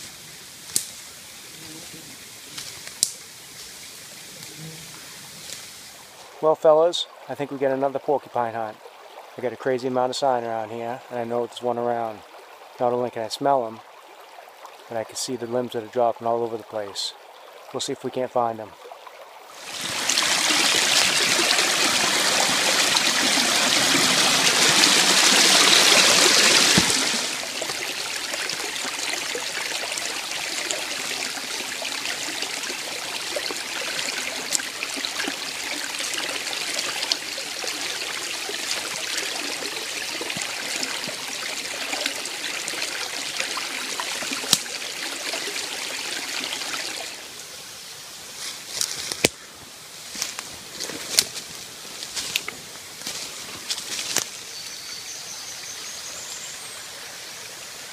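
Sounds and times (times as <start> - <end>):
brook trickling over stones: 0.0 - 57.9
faint clicks: 0.7 - 1.0, 2.5 - 3.8.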